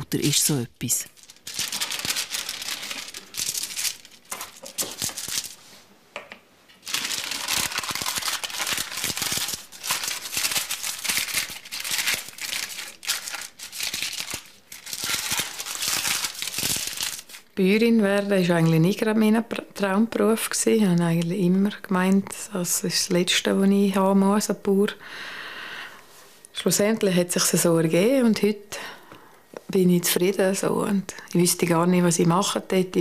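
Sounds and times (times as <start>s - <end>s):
baking paper crinkling: 0.0s - 5.8s, 6.8s - 19.4s.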